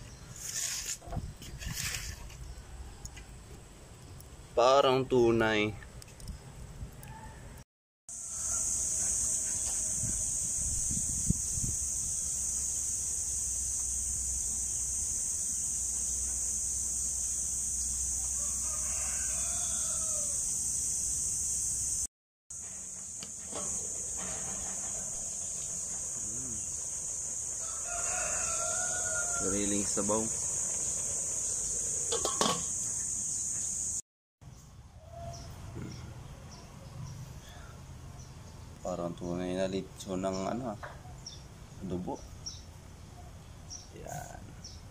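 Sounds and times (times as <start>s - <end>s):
rooster crowing: 7.0s - 7.6s, 8.2s - 10.5s, 18.1s - 20.6s, 27.4s - 32.6s, 35.0s - 35.8s
high insect drone: 8.1s - 34.0s
high-pitched hiss: 8.1s - 34.0s.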